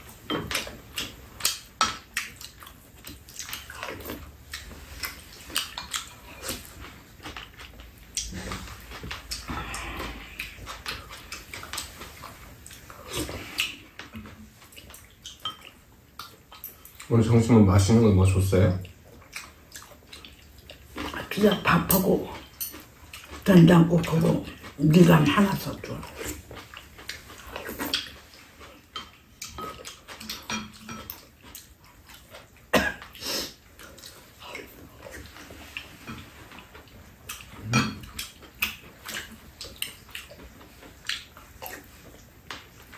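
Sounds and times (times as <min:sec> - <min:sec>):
people slurping and chewing: 0:00.0 - 0:42.9
people slurping soup: 0:09.4 - 0:10.8.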